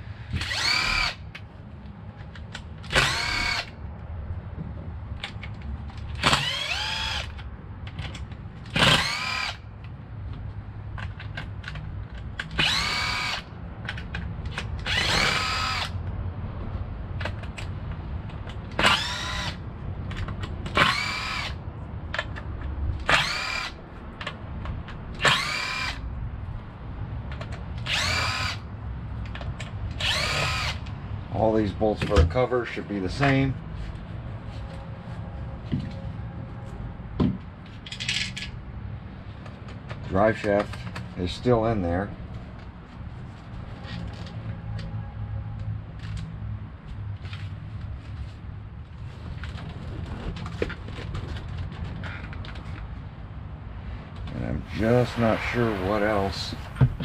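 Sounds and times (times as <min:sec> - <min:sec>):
electric screwdriver whining: 0:00.3 - 0:01.2, 0:02.9 - 0:03.7, 0:06.2 - 0:07.4, 0:08.7 - 0:09.6, 0:12.4 - 0:13.5, 0:14.8 - 0:16.0, 0:18.8 - 0:19.6, 0:20.7 - 0:21.6, 0:23.0 - 0:23.8, 0:25.2 - 0:26.0, 0:27.8 - 0:28.6, 0:30.0 - 0:30.9.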